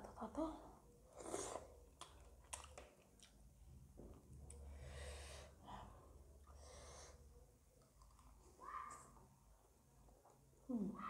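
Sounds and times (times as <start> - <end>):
soft chewing clicks: 1.3 - 3.5, 7.8 - 8.4
breathing through the nose: 4.7 - 5.9.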